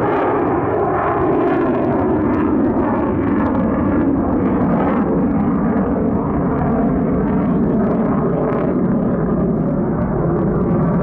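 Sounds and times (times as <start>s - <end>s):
jet engine rushing overhead: 0.0s - 11.0s.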